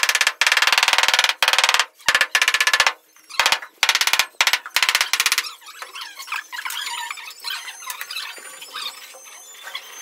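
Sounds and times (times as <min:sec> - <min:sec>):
wooden pole knocking on stone slab: 0:00.0 - 0:05.4.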